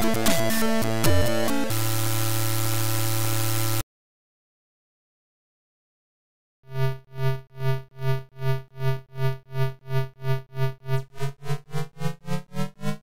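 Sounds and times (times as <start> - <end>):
low buzzy pulsing synth tone: 6.7 - 13.0.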